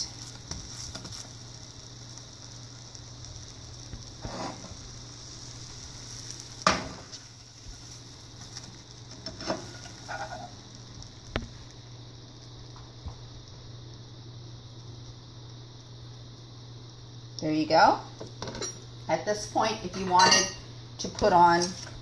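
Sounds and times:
toast sizzling in a pan: 0:00.0 - 0:22.0.

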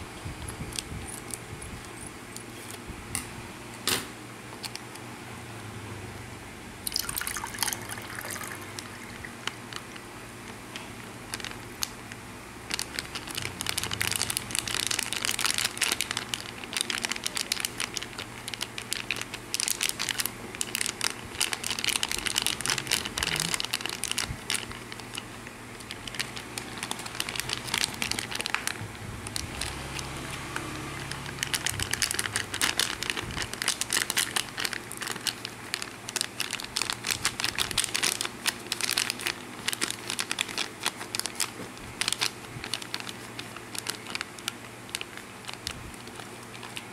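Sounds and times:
drink pouring into mug: 0:06.9 - 0:09.4
plastic bag crinkling: 0:06.9 - 0:46.9.

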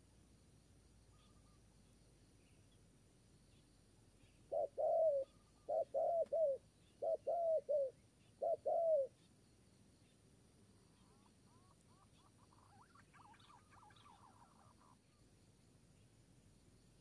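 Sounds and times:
dove cooing: 0:04.5 - 0:09.1.

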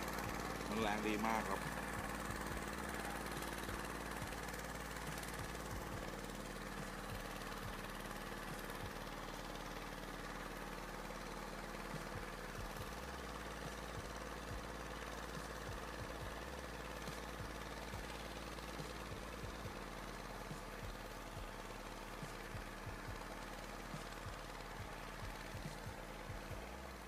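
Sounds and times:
engine humming steadily: 0:00.0 - 0:27.0.

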